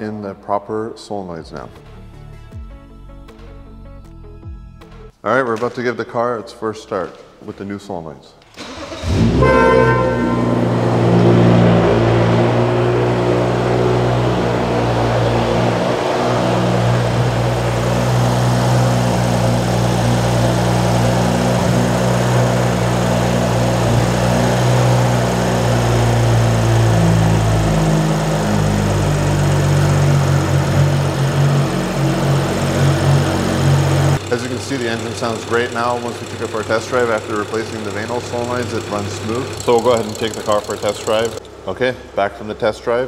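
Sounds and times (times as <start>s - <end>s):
car engine idling: 8.6s - 41.9s.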